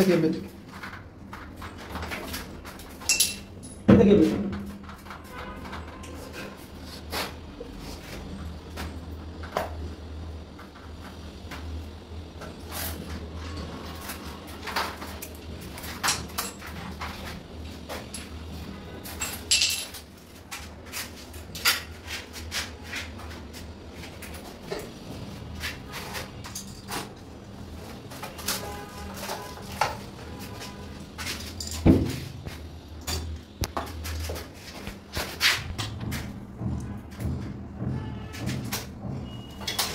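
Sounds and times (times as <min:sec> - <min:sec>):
steady low hum: 0:06.5 - 0:39.8.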